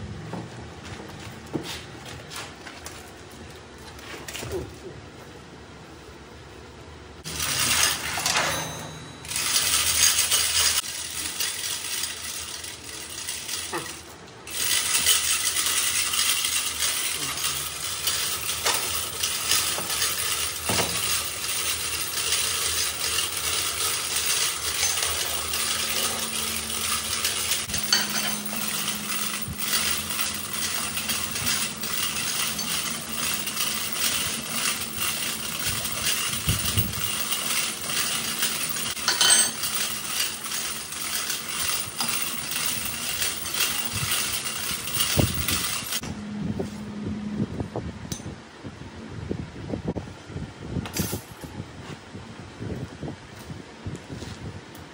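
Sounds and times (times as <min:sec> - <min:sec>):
steel chain rattling: 0:07.2 - 0:46.0.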